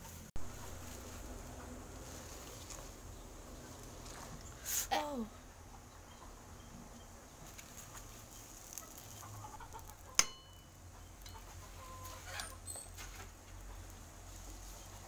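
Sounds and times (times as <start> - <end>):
chickens clucking: 0.0 - 4.7, 5.3 - 15.0
metal ladle clinking on pot: 10.2 - 11.4.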